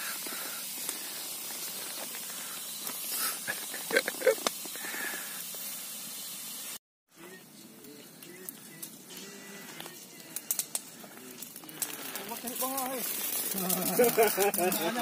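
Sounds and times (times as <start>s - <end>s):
campfire hissing and crackling: 0.0s - 15.0s
loud fire snap: 8.2s - 15.0s.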